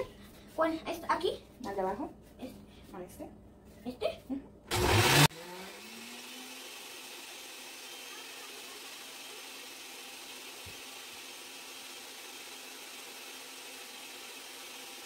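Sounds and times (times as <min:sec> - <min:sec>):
blender running: 0:04.7 - 0:15.0.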